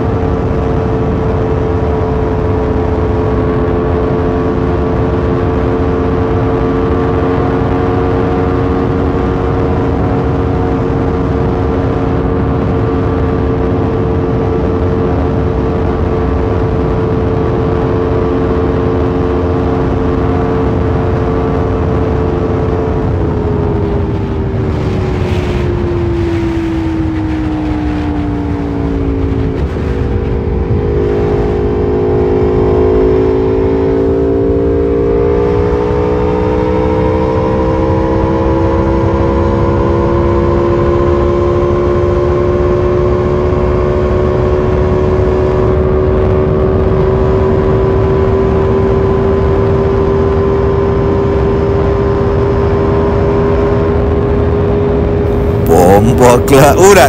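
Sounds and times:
motorcycle engine: 0:27.9 - 0:37.6
low rushing noise: 0:55.3 - 0:57.0.

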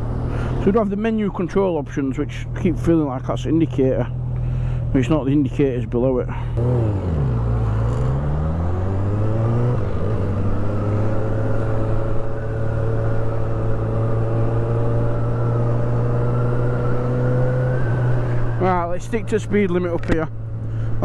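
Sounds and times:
motorcycle engine accelerating: 0:06.6 - 0:19.7.

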